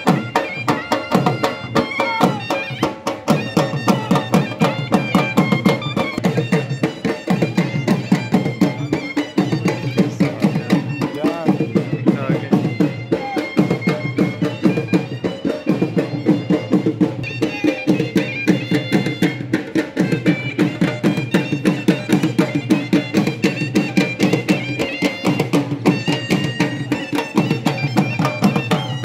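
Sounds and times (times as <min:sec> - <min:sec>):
fast drum beating: 0:00.0 - 0:29.0
high reed melody: 0:00.1 - 0:29.0.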